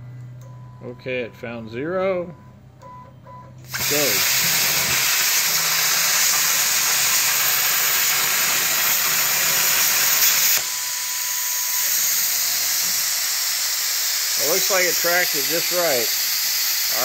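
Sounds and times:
plasma cutter arc hiss: 0:03.7 - 0:17.0.

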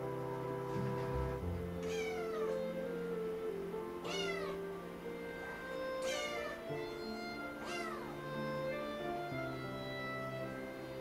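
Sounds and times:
background music: 0:00.0 - 0:11.0
kitten meowing: 0:01.7 - 0:03.0, 0:04.0 - 0:09.3.

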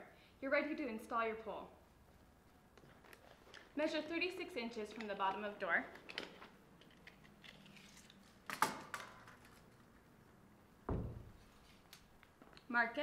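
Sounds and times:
dull thump: 0:10.9 - 0:11.4.

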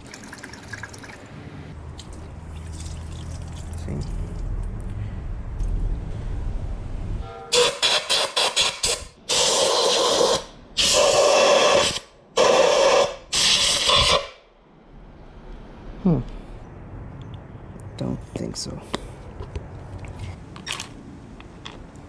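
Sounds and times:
compressed air puffs and blasts: 0:07.6 - 0:14.4.

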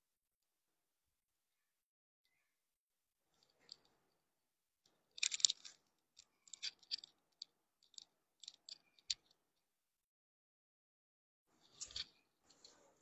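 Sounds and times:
clothes rustling and crinkling: 0:11.5 - 0:13.0.

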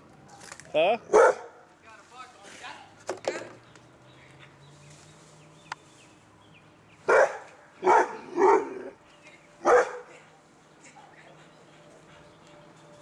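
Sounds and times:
dog barking: 0:01.1 - 0:01.6, 0:07.1 - 0:09.0, 0:09.6 - 0:10.2.

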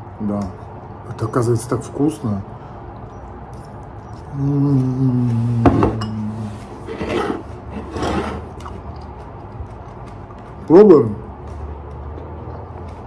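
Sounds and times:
man humming mmm while chewing: 0:04.1 - 0:06.8.

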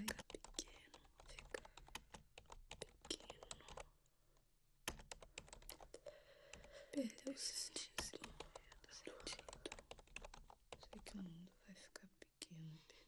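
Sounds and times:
fast keyboard typing: 0:00.0 - 0:03.9, 0:04.9 - 0:06.8, 0:07.5 - 0:11.4.

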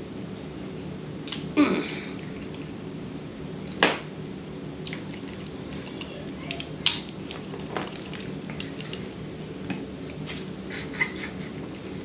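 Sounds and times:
shells cracking: 0:06.5 - 0:09.0.

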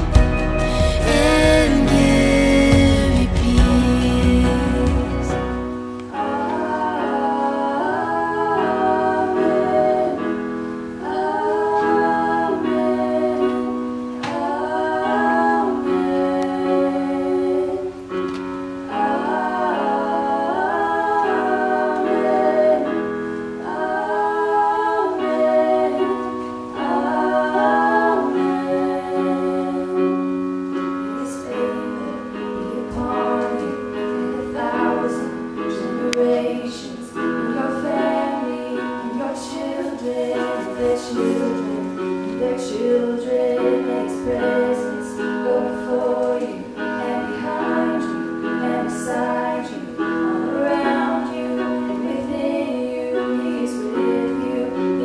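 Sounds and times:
sustained chords: 0:00.0 - 0:10.4
person singing: 0:00.0 - 0:55.0.

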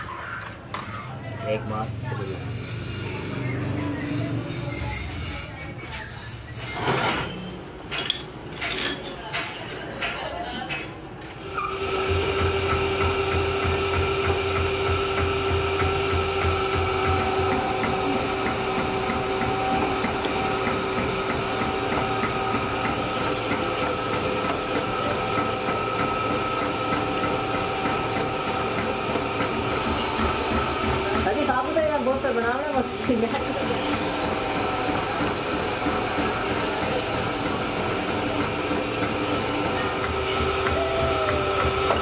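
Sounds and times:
metal lathe humming: 0:11.4 - 0:42.0.

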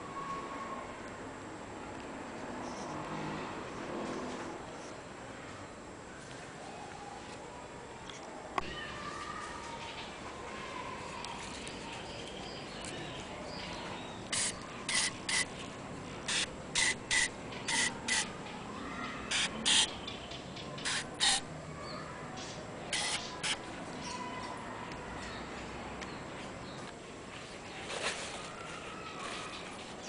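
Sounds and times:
aerosol spray bursts: 0:14.3 - 0:15.5, 0:16.3 - 0:18.3, 0:19.3 - 0:19.9, 0:20.8 - 0:21.4, 0:22.9 - 0:23.6.

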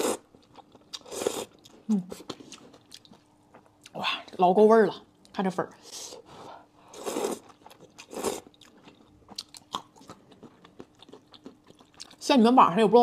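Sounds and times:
person slurping noodles: 0:00.0 - 0:00.3, 0:01.0 - 0:01.6, 0:06.9 - 0:07.5
soft wet chewing: 0:00.0 - 0:04.4, 0:06.5 - 0:12.2.

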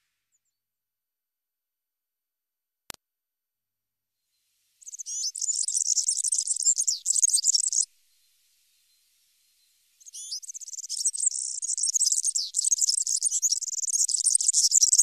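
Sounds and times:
bird singing high phrase: 0:04.8 - 0:15.0.

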